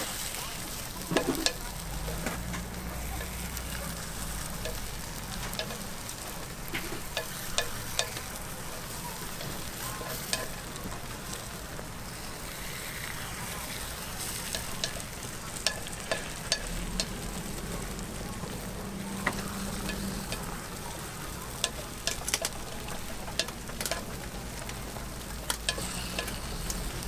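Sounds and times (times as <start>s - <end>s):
batter sizzling in griddle mold: 0.0s - 27.0s
metal pick clicking and scraping: 25.4s - 27.0s.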